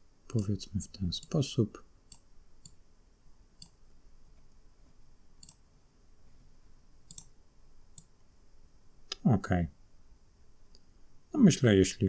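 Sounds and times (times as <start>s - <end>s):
faint mouse clicks: 0.3s - 0.6s, 2.1s - 2.8s, 3.6s - 4.7s, 5.4s - 5.6s, 7.0s - 8.2s, 9.1s - 9.3s.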